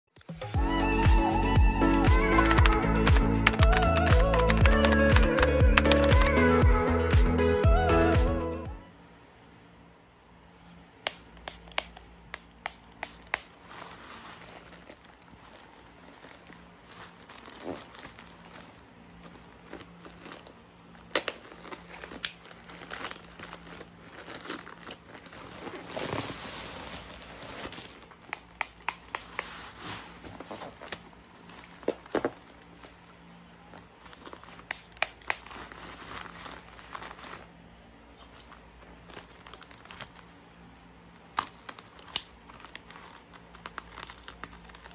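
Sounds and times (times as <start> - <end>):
plastic bag crinkling and tearing: 13.6 - 28.6, 29.2 - 44.9.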